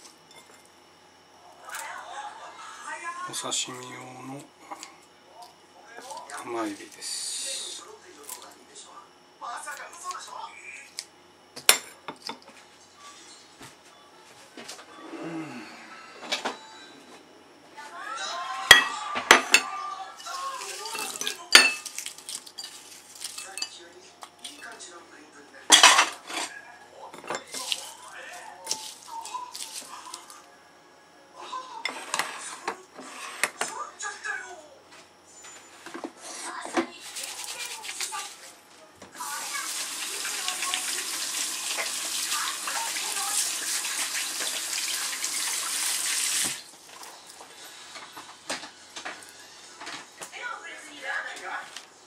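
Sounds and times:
ceramic bowls clinking: 0:18.7 - 0:23.8
tap water running into sink: 0:39.2 - 0:46.6.

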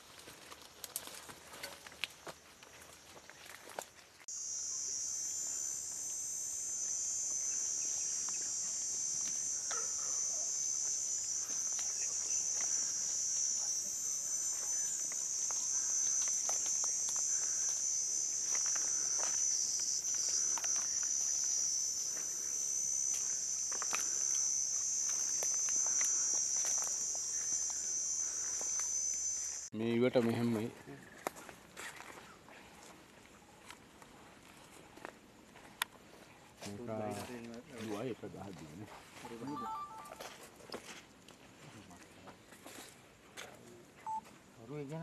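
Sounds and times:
footsteps in dry leaves: 0:00.0 - 0:04.3
insects droning: 0:00.0 - 0:29.7.

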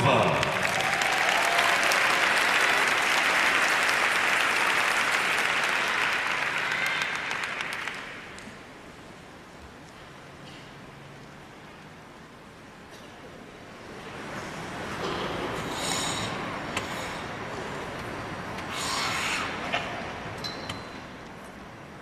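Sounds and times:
arena crowd applauding and cheering: 0:00.0 - 0:08.6.

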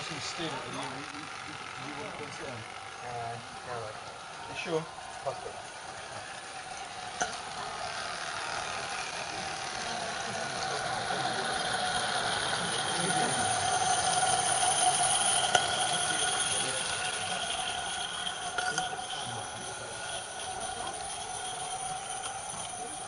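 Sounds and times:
train wheels rattling on rail: 0:00.0 - 0:23.0
high-pitched wheel squeal: 0:11.1 - 0:23.0.

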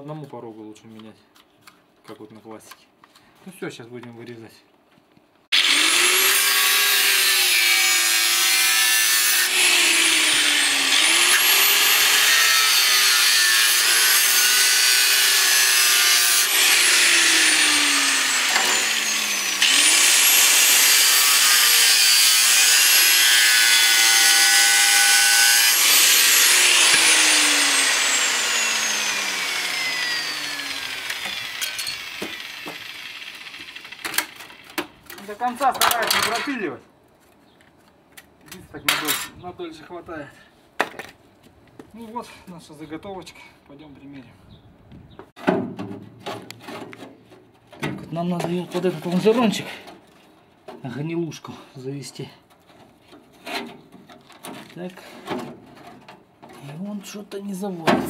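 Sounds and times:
angle grinder cutting steel: 0:05.5 - 0:34.7.

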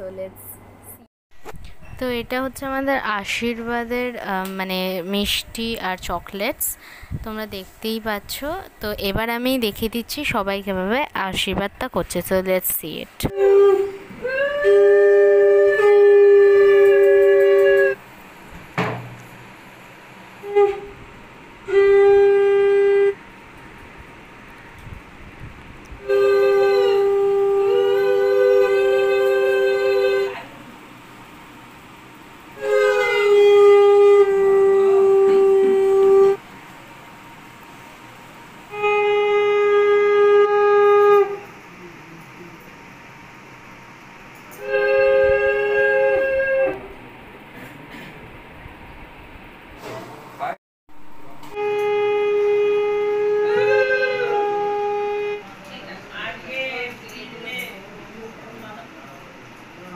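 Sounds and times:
conch shell blowing: 0:13.3 - 0:18.0, 0:20.4 - 0:23.4, 0:25.9 - 0:30.5, 0:32.5 - 0:36.4, 0:38.6 - 0:42.6, 0:44.5 - 0:47.0, 0:51.0 - 0:55.9.

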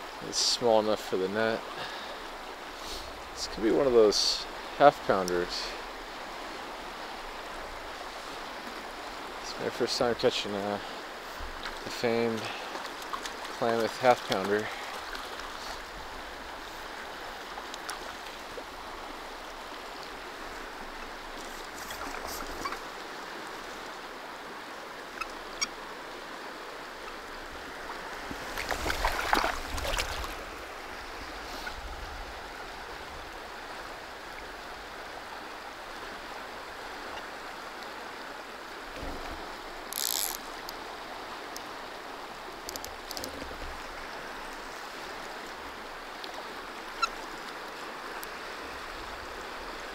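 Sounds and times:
river rushing over rocks: 0:00.0 - 0:49.9
water splashing: 0:07.2 - 0:24.0, 0:27.1 - 0:32.2.

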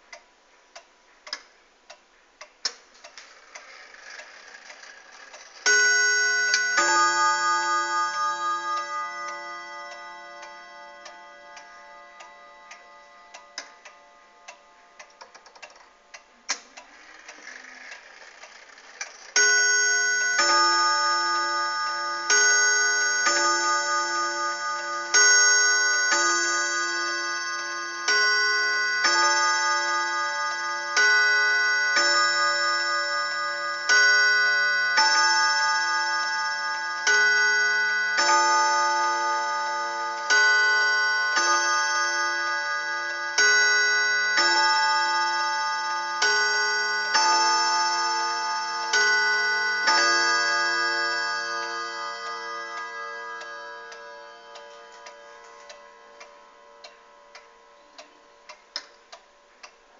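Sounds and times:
clock ticking faintly: 0:00.0 - 0:59.9
clock gong ringing: 0:05.6 - 0:15.2, 0:19.3 - 0:58.4.

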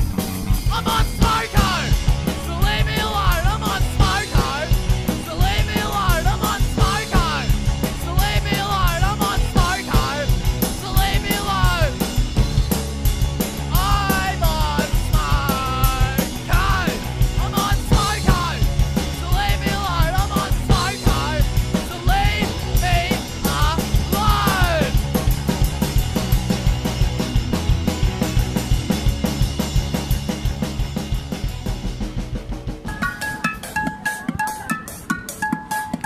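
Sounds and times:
drum kit: 0:00.0 - 0:36.0
punk rock song: 0:00.0 - 0:36.0
person singing: 0:00.6 - 0:12.0, 0:13.7 - 0:25.0.

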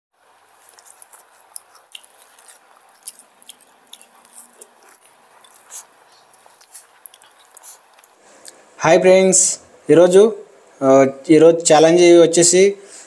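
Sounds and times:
wet chewing: 0:00.2 - 0:08.6
lip-smacking and mouth clicks: 0:00.4 - 0:08.6.

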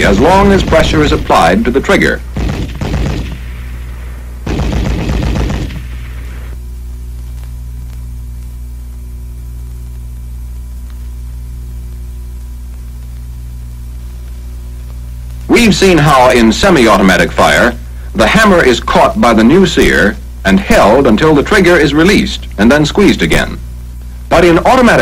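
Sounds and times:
machine-gun fire: 0:00.0 - 0:06.6
low soundtrack hum: 0:00.0 - 0:25.0.

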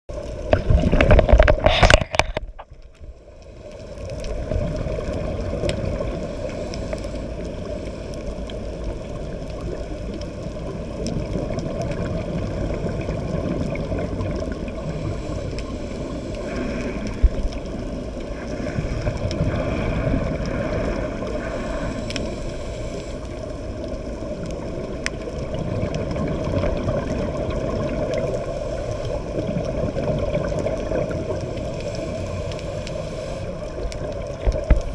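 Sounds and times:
muffled underwater rumble: 0:00.1 - 0:34.9
rush of exhaled bubbles: 0:00.4 - 0:02.6, 0:10.6 - 0:22.6, 0:24.1 - 0:34.9.

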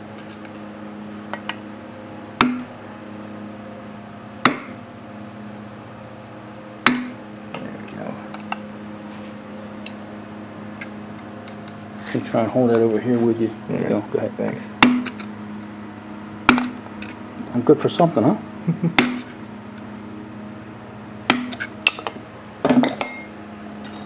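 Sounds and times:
light metal clinks: 0:22.7 - 0:24.0.

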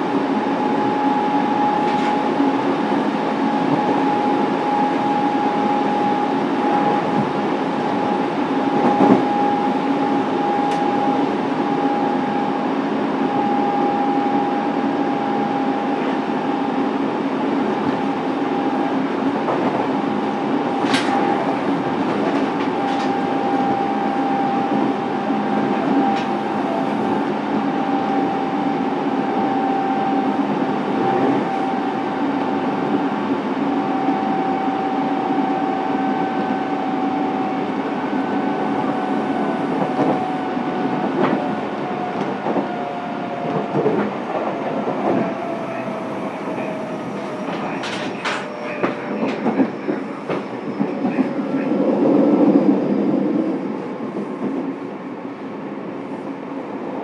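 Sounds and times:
train inverter whine: 0:00.0 - 0:57.0
wheel and rail noise: 0:17.7 - 0:54.7
rail-joint clicks: 0:19.4 - 0:24.9, 0:25.5 - 0:26.9, 0:46.5 - 0:51.4.

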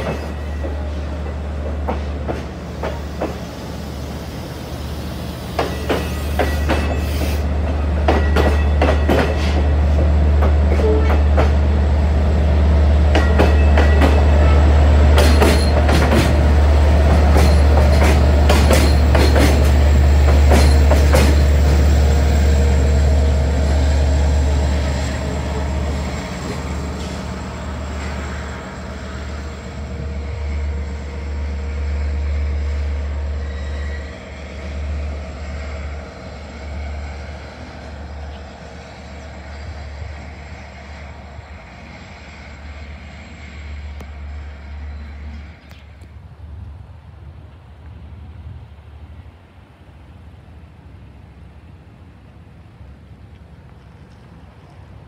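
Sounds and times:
train wheels clicking over rail joints: 0:00.0 - 0:03.9, 0:05.2 - 0:11.8, 0:13.0 - 0:22.2
diesel locomotive engine rumble: 0:00.0 - 0:55.0.

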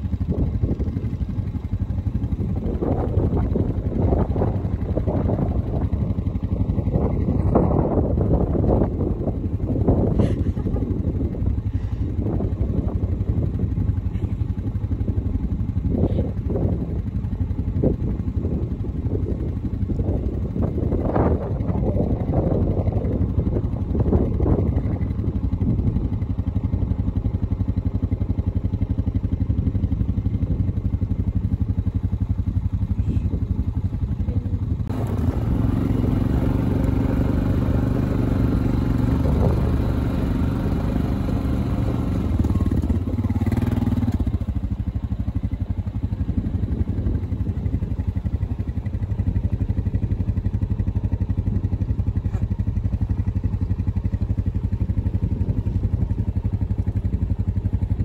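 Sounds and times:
quad engine running: 0:00.0 - 0:58.0.

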